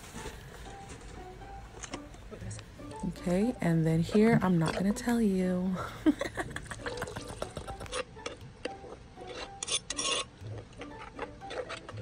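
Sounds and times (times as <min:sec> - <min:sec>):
spoon clinking and scraping bowl: 0:08.8 - 0:12.0.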